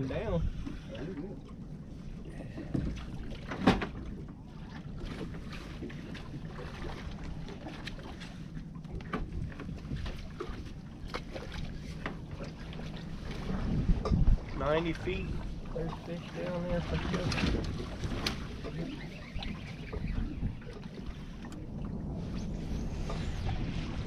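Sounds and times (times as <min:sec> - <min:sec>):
wind on microphone: 0:00.0 - 0:15.9, 0:16.5 - 0:24.0
boat engine rumble: 0:00.0 - 0:24.0.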